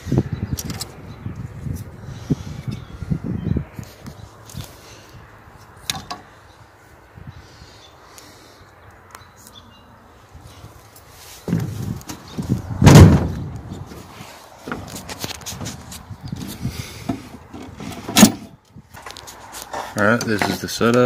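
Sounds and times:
loud bang: 12.8s - 13.4s
knocks and clunks on mower: 14.6s - 19.2s.

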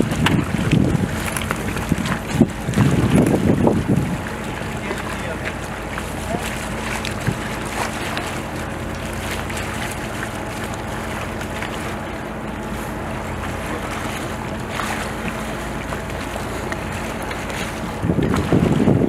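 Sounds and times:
wind on microphone: 0.0s - 5.4s, 16.4s - 19.0s
boat engine humming: 0.0s - 19.0s
water around hull: 0.0s - 19.0s.

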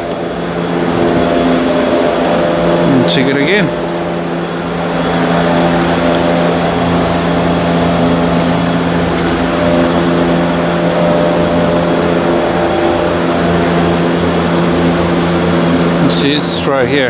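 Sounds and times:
steady mechanical hum: 0.0s - 17.0s
dipstick scraping out of tube: 7.9s - 9.8s.

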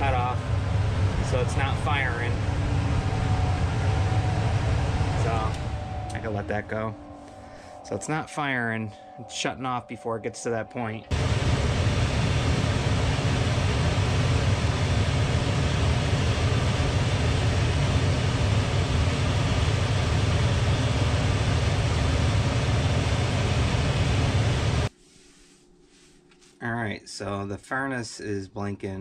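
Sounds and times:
furnace blower fan whooshing: 0.0s - 7.1s, 11.1s - 24.9s.

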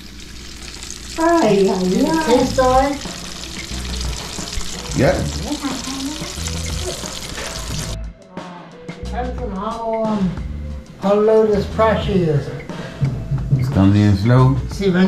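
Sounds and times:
fries sizzling in hot oil: 0.0s - 8.0s.

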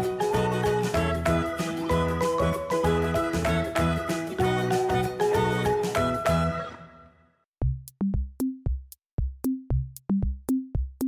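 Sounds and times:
upbeat children's music: 0.0s - 7.2s.

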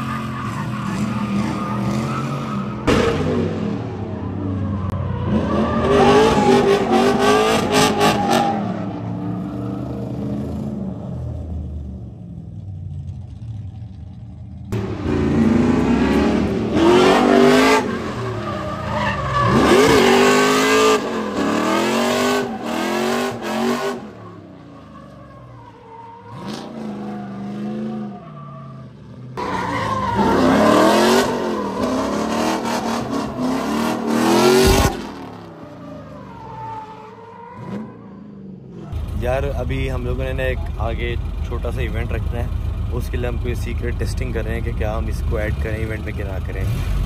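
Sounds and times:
tyre squeal: 0.0s - 3.2s
car engines revving: 0.0s - 47.0s.

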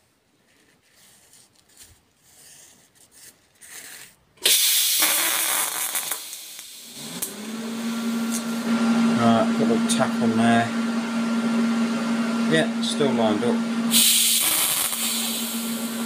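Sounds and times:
welding arc hiss: 4.4s - 7.3s, 13.9s - 16.0s
welding machine hum: 4.4s - 16.0s.

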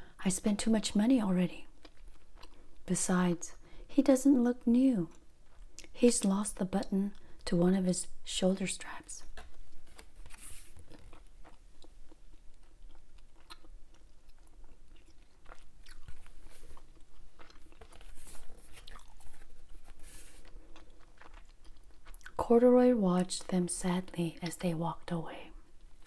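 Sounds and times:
chewing gum wet smacks: 1.8s - 2.8s, 10.8s - 22.4s.

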